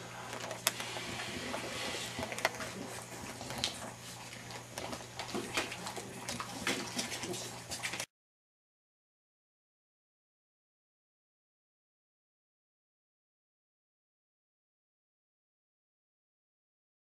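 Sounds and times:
steady low hum: 0.0s - 8.1s.

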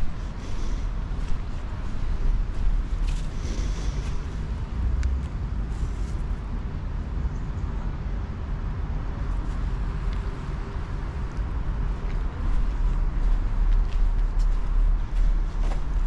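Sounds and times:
faint clicks and scuffs: 0.0s - 6.3s, 9.3s - 10.4s, 11.2s - 16.0s
steady low rumble: 0.0s - 16.0s.

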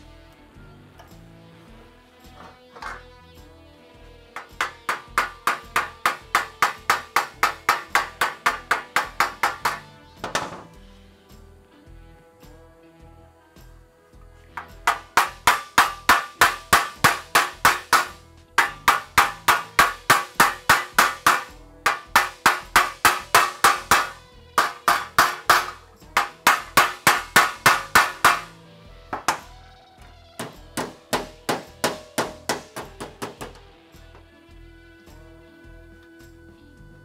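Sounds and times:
background music: 0.0s - 37.0s
hammer striking sheet metal: 4.4s - 10.8s, 14.6s - 28.6s, 29.2s - 29.5s, 30.4s - 33.6s.

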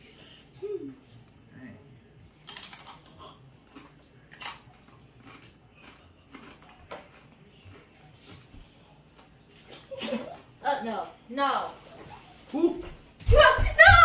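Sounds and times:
chip crunching: 2.4s - 8.5s.

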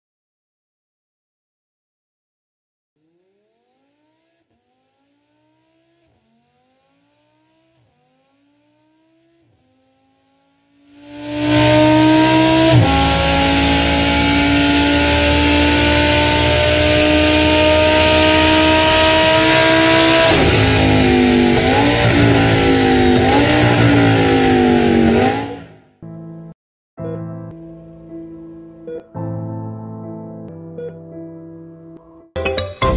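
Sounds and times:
sports car engine revving: 3.0s - 25.9s.

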